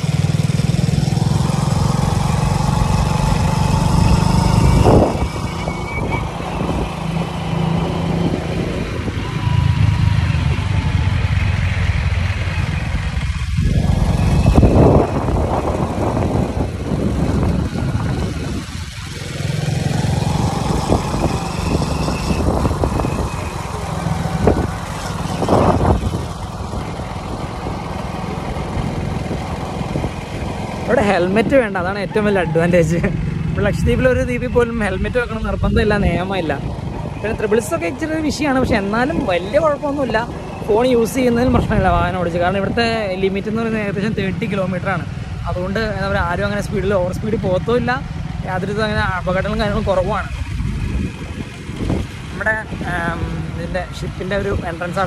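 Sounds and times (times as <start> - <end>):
small motorcycle engine revving: 0.0 - 34.0, 47.7 - 53.8
wind buffeting microphone: 2.1 - 11.1, 12.8 - 55.0.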